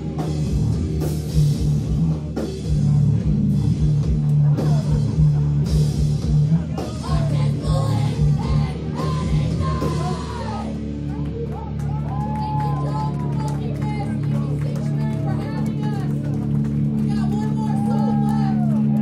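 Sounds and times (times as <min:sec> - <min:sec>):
heavy rock band playing: 0:00.0 - 0:19.0
yelled vocals: 0:06.6 - 0:10.8.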